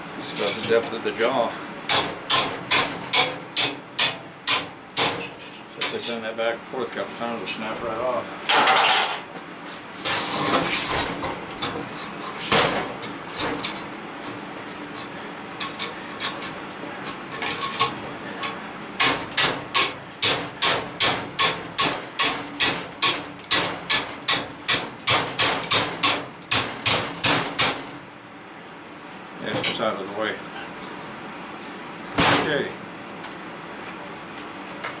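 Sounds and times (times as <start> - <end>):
metal clinking and scraping: 0.2 - 1.0, 8.5 - 9.3, 14.9 - 18.6
hammer striking sheet metal: 1.9 - 5.4, 19.0 - 28.0, 32.2 - 32.6.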